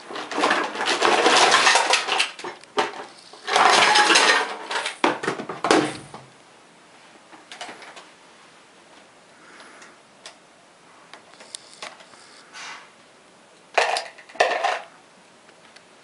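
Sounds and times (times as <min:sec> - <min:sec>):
plastic toys clattering: 0:00.0 - 0:06.3, 0:07.4 - 0:08.1, 0:13.7 - 0:14.9.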